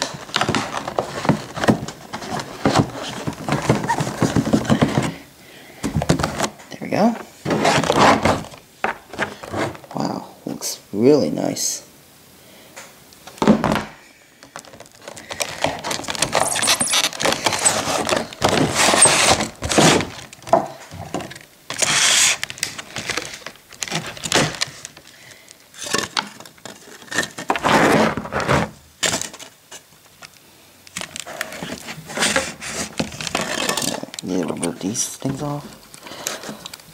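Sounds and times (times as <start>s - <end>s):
plastic packaging crinkling: 0.0s - 5.3s, 14.4s - 36.9s.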